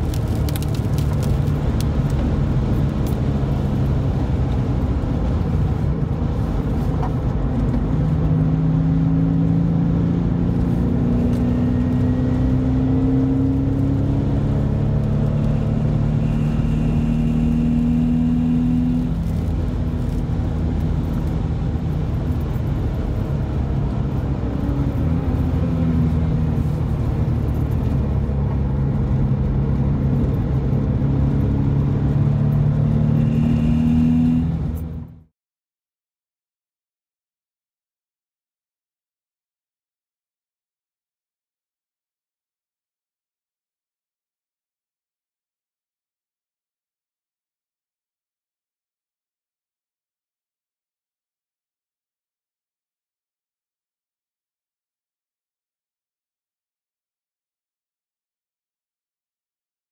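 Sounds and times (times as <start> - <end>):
car engine accelerating: 0.0 - 35.3
tyre road noise: 0.0 - 35.3.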